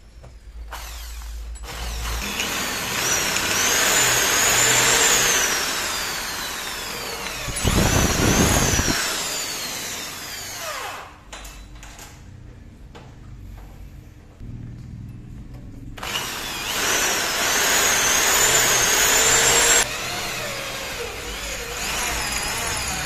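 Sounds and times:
electric drill boring into metal: 0:00.7 - 0:11.1, 0:16.0 - 0:23.0.

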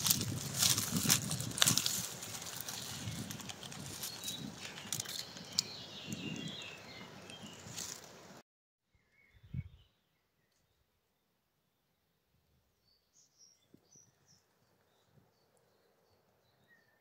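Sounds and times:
dry leaves rustling and crackling: 0:00.0 - 0:08.2.

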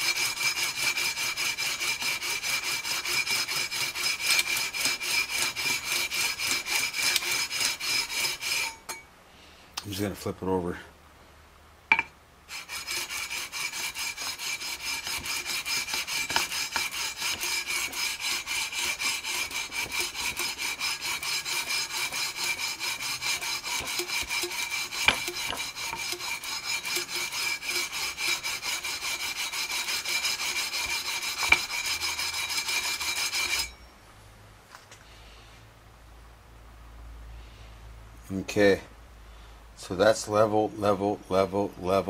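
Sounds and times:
sandpaper scraping on frets: 0:00.0 - 0:08.8, 0:12.5 - 0:33.7
high ringing: 0:32.4 - 0:34.0.

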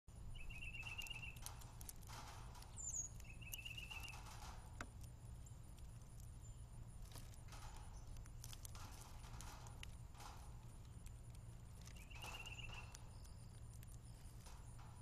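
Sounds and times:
steady low hum: 0:00.1 - 0:15.0
small bird trilling: 0:00.3 - 0:01.6, 0:02.8 - 0:04.3, 0:11.8 - 0:14.4.

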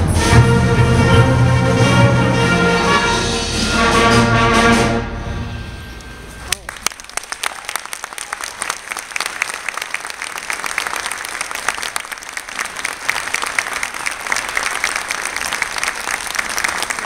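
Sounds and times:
audience applauding: 0:06.5 - 0:17.0.

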